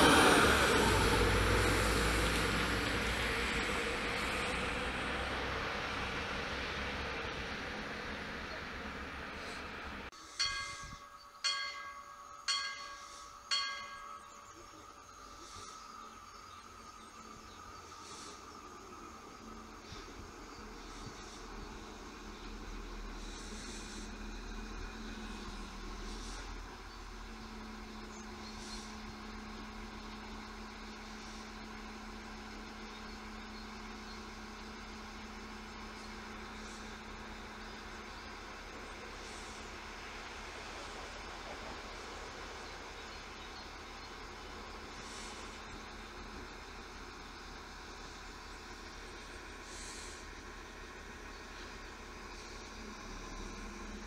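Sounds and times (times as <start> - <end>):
diesel railcar rumbling: 0.0 - 54.0
bell ringing: 10.4 - 14.6.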